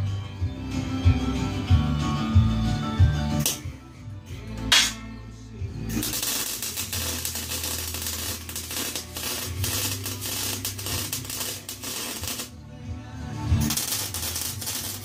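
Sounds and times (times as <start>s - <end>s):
welding arc crackling: 6.0s - 12.5s, 13.6s - 15.0s.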